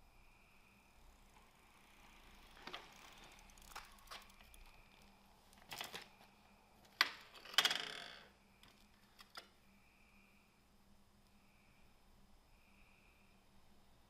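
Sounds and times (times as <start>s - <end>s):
bike metal clicks: 2.5s - 6.1s.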